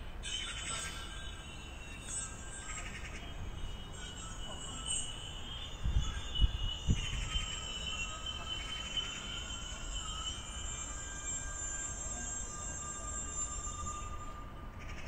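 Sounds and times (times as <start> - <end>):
low background hum: 0.0 - 15.0
faint high-pitched tones: 0.1 - 15.0.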